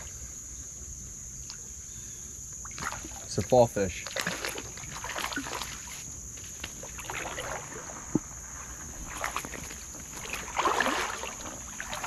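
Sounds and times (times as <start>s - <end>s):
water splashing and sloshing: 2.6s - 12.0s.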